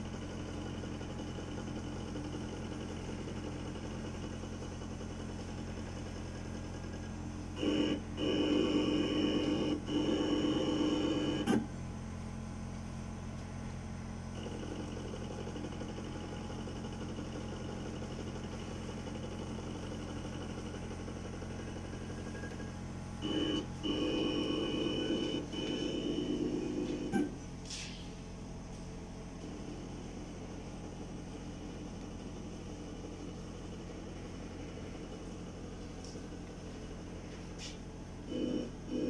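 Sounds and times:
milling machine motor whine: 0.0s - 39.0s
quiet steady hum: 0.0s - 39.0s.

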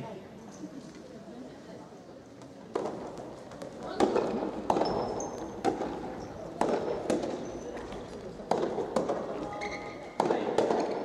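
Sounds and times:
racket striking ball: 2.7s - 9.5s, 10.1s - 11.0s
ball bouncing on wooden court: 2.7s - 11.0s.

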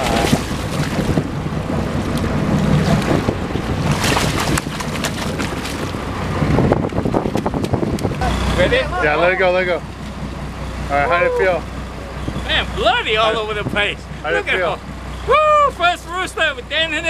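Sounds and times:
water splashing against boat hull: 0.0s - 8.5s
wind buffeting microphone: 0.0s - 14.3s.

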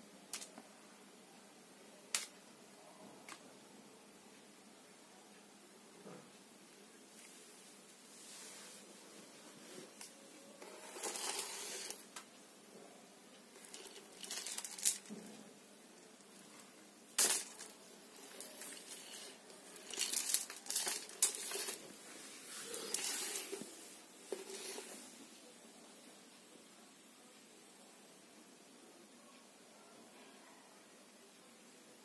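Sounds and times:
beads rattling on tiled floor: 10.6s - 12.1s, 13.5s - 15.4s, 16.0s - 25.1s.

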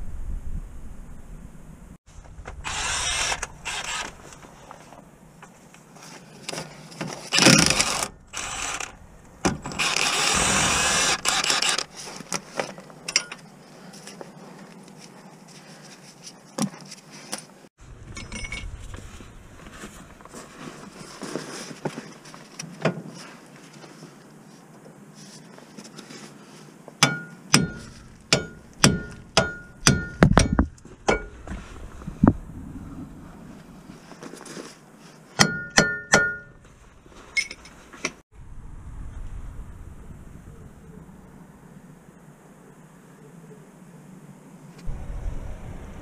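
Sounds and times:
cordless power tool bursts: 2.6s - 4.3s, 7.3s - 9.0s, 9.6s - 11.9s.

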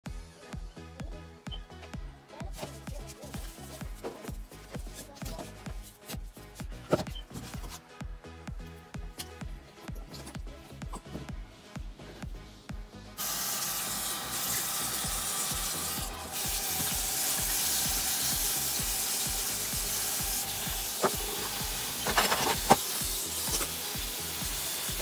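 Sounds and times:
background music with beat: 0.0s - 25.0s
tap water running into sink: 13.2s - 25.0s.

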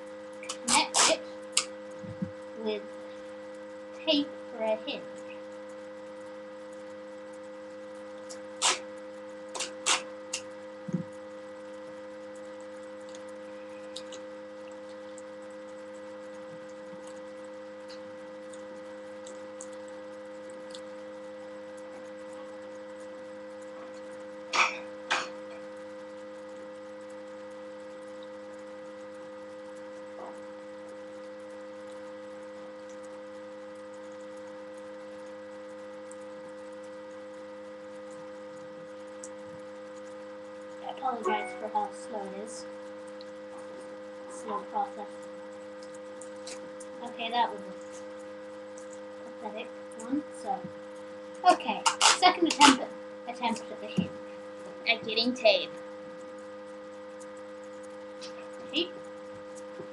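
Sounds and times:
electrical mains hum: 0.0s - 59.9s
sticky tape crackling: 0.4s - 2.4s, 8.0s - 23.0s, 51.4s - 54.2s.

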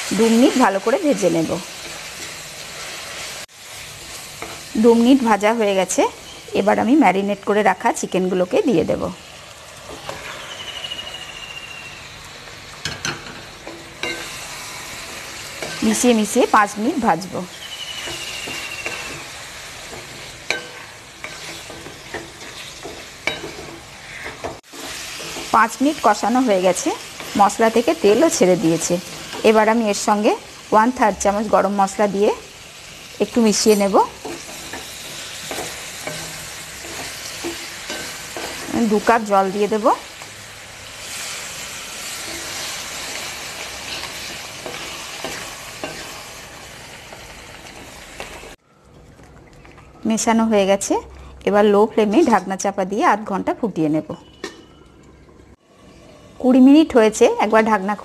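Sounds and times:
chicken sizzling in oil: 0.0s - 48.6s
spatula scraping and knocking pan: 12.8s - 16.1s, 18.0s - 25.8s, 33.6s - 39.1s, 42.2s - 46.3s
spatula scraping metal pan: 18.0s - 25.5s.

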